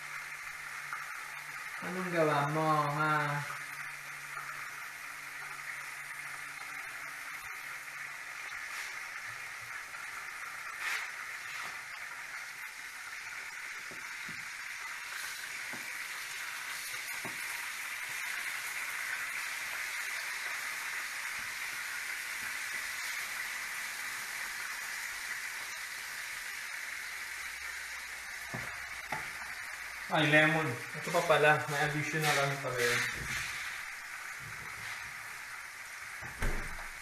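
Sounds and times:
chicken sizzling in hot oil: 0:00.0 - 0:37.0.

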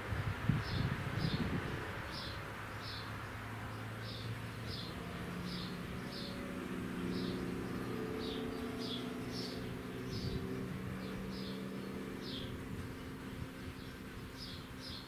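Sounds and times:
small bird chirping: 0:07.0 - 0:15.0.

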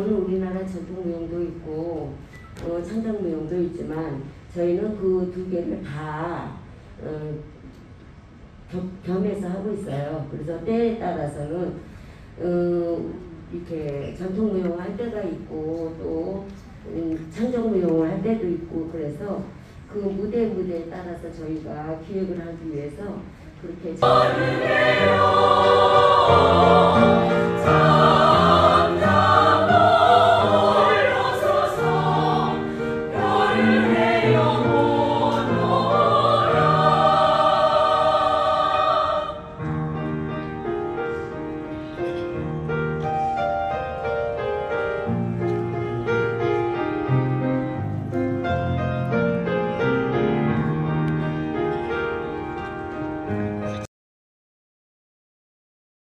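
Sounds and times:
choir singing loudly: 0:24.0 - 0:39.6
instrumental music: 0:24.0 - 0:53.8.

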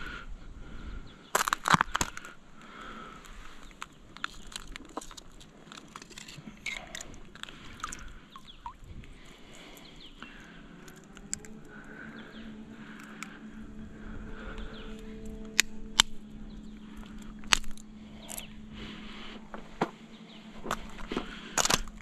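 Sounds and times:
oyster shells clicking and crunching: 0:01.3 - 0:02.3, 0:03.2 - 0:11.6, 0:13.0 - 0:13.3, 0:16.9 - 0:18.5, 0:20.7 - 0:22.0.

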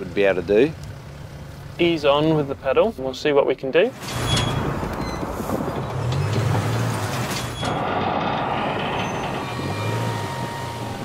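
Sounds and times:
heavy truck wheels rumbling: 0:03.9 - 0:11.0.

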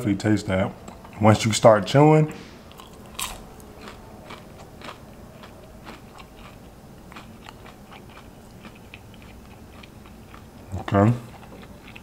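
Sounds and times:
person chewing crunchy food: 0:02.7 - 0:12.0.

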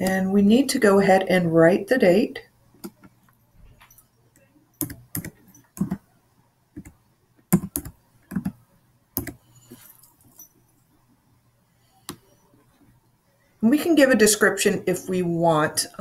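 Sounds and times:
keyboard typing: 0:02.8 - 0:06.0, 0:06.8 - 0:08.6, 0:09.2 - 0:10.4.

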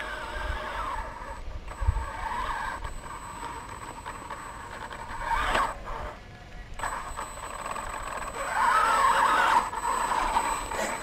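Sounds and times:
toy truck motor whining: 0:00.0 - 0:11.0.

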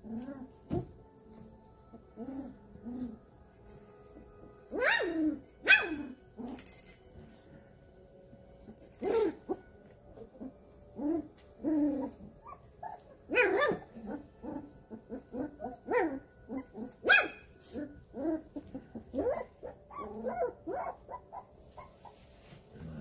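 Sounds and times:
puppies yipping and barking: 0:04.7 - 0:06.6, 0:10.2 - 0:22.2.

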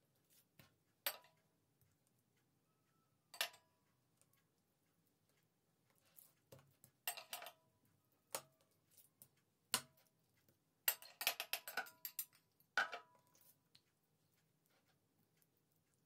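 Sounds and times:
metal spoon clinking on plate: 0:07.1 - 0:07.6, 0:10.9 - 0:13.2.

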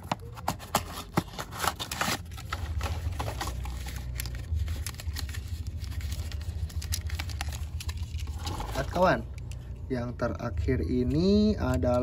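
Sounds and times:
cardboard and plastic crackling: 0:00.0 - 0:09.6
steady low rumble: 0:02.3 - 0:12.0.

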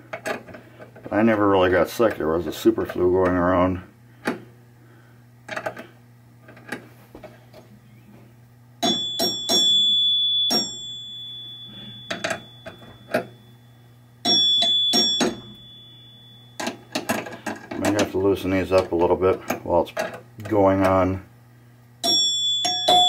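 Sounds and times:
low steady hum: 0:00.0 - 0:23.0
pinball chimes being struck: 0:08.8 - 0:18.1, 0:22.0 - 0:23.0.

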